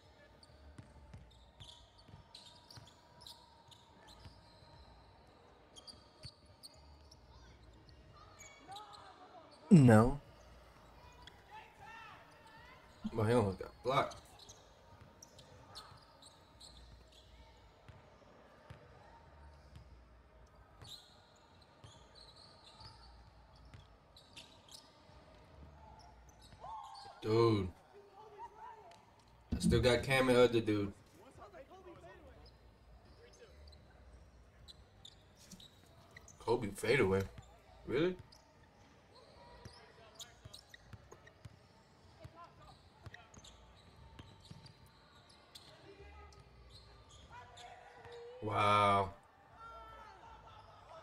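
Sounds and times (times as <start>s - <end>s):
sneakers squeaking: 0.4s - 5.1s, 14.1s - 18.0s, 29.5s - 30.5s, 32.4s - 37.6s, 39.6s - 41.7s, 42.4s - 48.4s
shoe squeaks: 29.5s - 30.4s, 34.6s - 36.8s, 42.6s - 45.8s.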